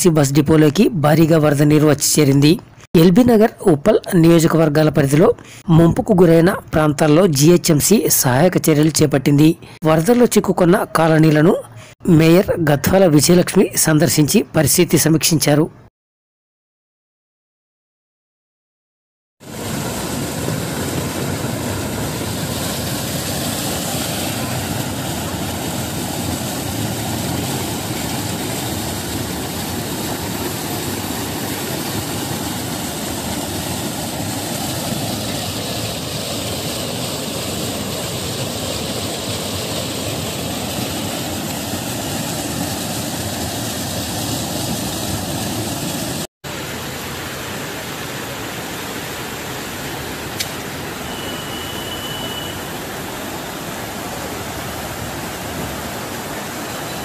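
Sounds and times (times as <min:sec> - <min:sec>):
fast-flowing floodwater: 0:19.4 - 0:57.0
floodwater gushing from manhole: 0:19.4 - 0:57.0.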